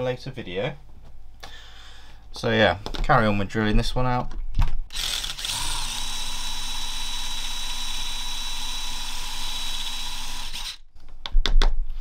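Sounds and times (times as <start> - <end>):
electric drill whining: 4.9 - 10.8.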